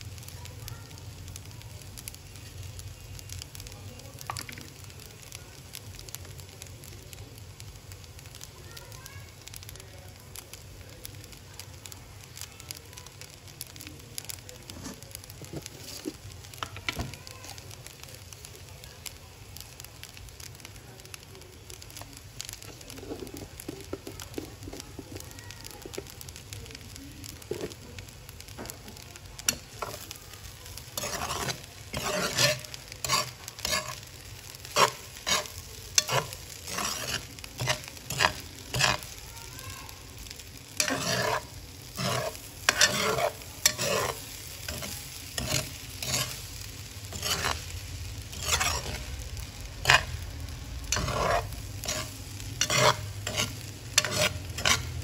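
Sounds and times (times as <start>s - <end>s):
light sizzle of stir-frying: 0.0s - 55.0s
metal spatula scraping pan: 30.9s - 34.0s, 34.7s - 39.1s, 40.8s - 46.4s, 47.1s - 47.7s, 48.3s - 49.1s, 49.8s - 50.1s, 50.9s - 55.0s.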